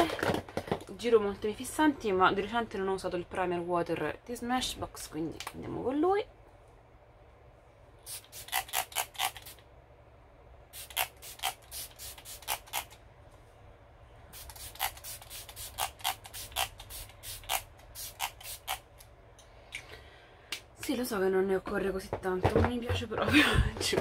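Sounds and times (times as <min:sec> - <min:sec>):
face mist spray hissing: 0:08.1 - 0:09.6, 0:10.7 - 0:12.9, 0:14.3 - 0:18.8.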